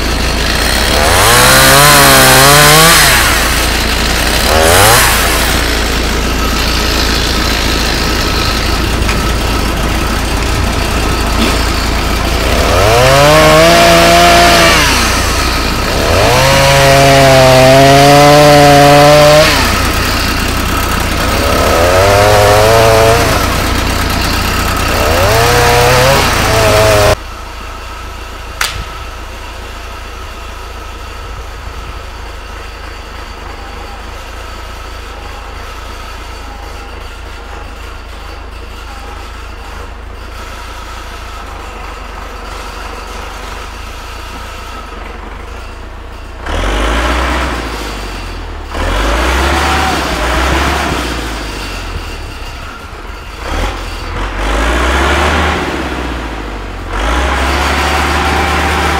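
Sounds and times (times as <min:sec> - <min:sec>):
engine revving hard: 0:00.0 - 0:27.2, 0:46.4 - 0:52.2, 0:53.3 - 0:58.9
engine running steadily: 0:00.0 - 0:58.9
sharp click: 0:28.6 - 0:28.9.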